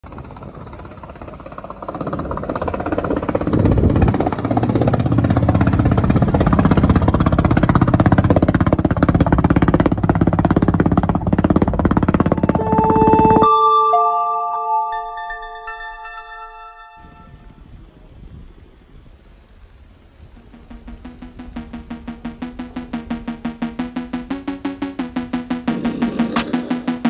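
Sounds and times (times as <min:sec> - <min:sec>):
background music: 0:12.3 - 0:17.4, 0:20.4 - 0:27.0
boat engine pulsing: 0:20.4 - 0:27.0.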